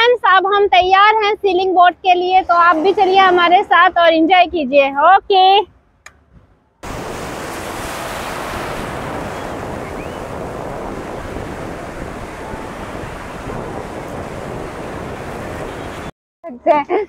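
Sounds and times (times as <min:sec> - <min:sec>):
wind buffeting microphone: 0:06.2 - 0:16.1
sea surf breaking: 0:06.8 - 0:16.1.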